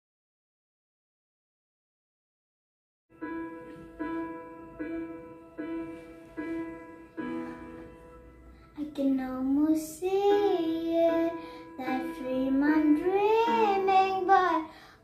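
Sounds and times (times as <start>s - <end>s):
held keyboard notes: 3.2s - 15.0s
girl singing a pop ballad: 8.8s - 15.0s.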